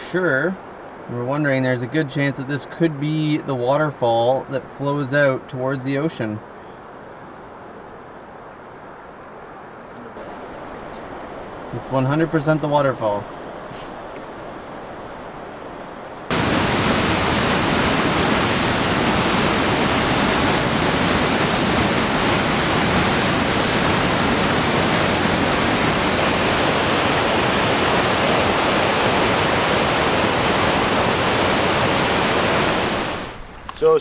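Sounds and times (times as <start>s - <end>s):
faint river: 0.0s - 34.0s
waterfall rushing: 10.2s - 13.3s, 16.3s - 33.4s.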